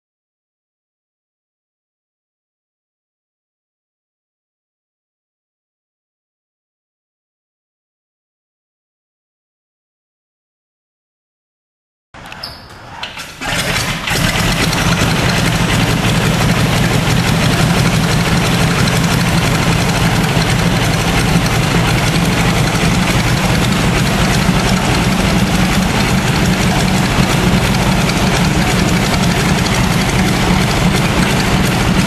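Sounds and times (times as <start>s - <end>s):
biplane engine starting and idling: 13.0s - 32.0s.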